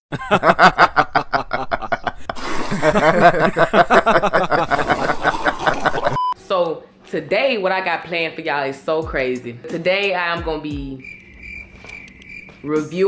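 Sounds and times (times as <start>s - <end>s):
person laughing: 0.1s - 6.2s.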